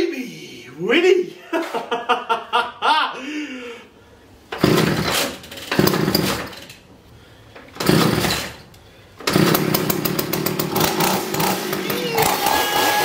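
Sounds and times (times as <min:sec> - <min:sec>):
chainsaw pull-start cranking: 0:04.5 - 0:06.8, 0:07.7 - 0:13.0
chainsaw engine running: 0:04.6 - 0:05.2, 0:05.8 - 0:06.4, 0:07.8 - 0:08.6, 0:09.2 - 0:13.0.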